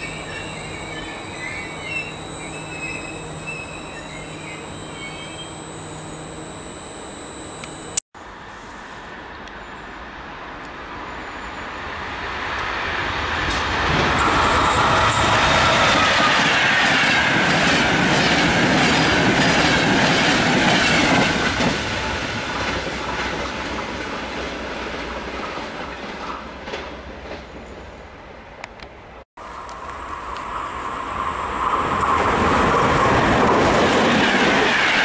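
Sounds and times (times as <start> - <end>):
train passing at speed: 8.2 - 28.6, 29.4 - 35.0.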